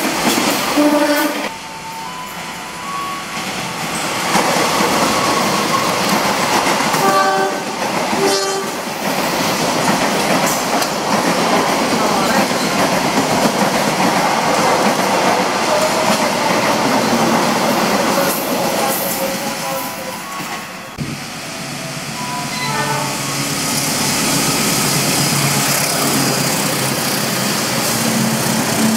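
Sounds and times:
train rushing past on rails: 0.0 - 28.9
train horn toots: 0.8 - 1.6, 7.0 - 8.9, 22.2 - 23.4.

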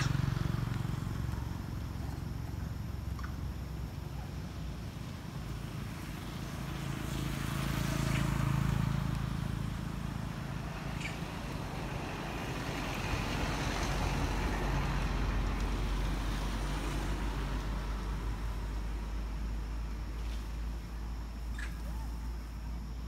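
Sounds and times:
passing traffic engine rumble: 0.0 - 23.0.

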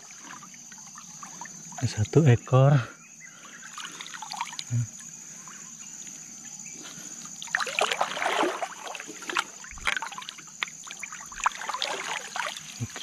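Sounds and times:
river water splashing: 0.0 - 1.8, 3.6 - 4.7, 7.4 - 13.0.

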